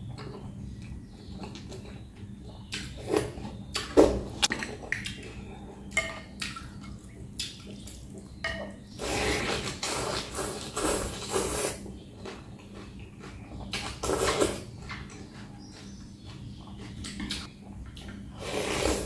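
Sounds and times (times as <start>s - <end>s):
slurping noodles: 9.0s - 11.9s, 18.4s - 19.0s.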